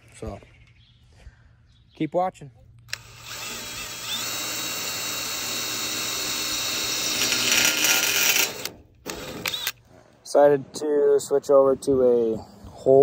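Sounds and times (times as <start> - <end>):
cordless drill drilling sheet metal: 2.9 - 9.8.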